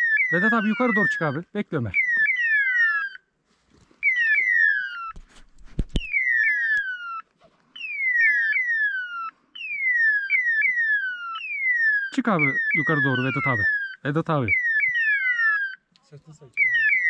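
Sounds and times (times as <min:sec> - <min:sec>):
electronic beeper calls sliding down: 0:12.3 - 0:15.7, 0:16.6 - 0:17.0.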